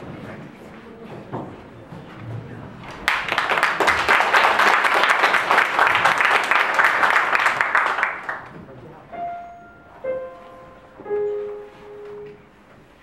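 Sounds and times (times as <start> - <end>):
audience applauding: 2.9 - 8.6.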